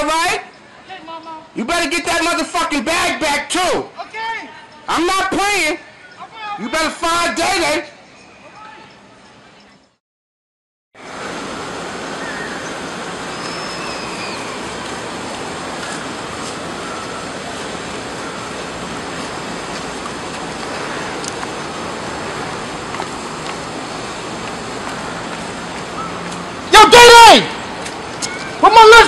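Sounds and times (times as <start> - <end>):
street noise: 0.0 - 10.0, 11.0 - 29.0
faint high chirps: 12.2 - 14.6.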